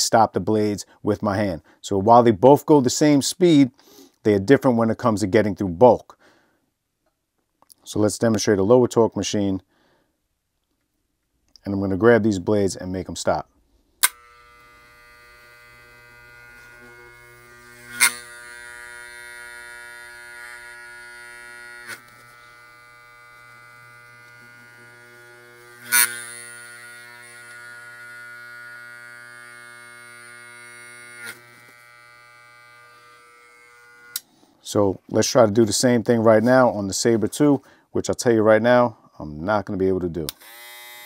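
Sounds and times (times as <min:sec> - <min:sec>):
sharp clacks of clipper: 0:14.0 - 0:17.0, 0:17.7 - 0:20.9, 0:25.8 - 0:28.0, 0:30.7 - 0:32.6
hair clipper humming: 0:14.0 - 0:34.3, 0:40.3 - 0:41.0.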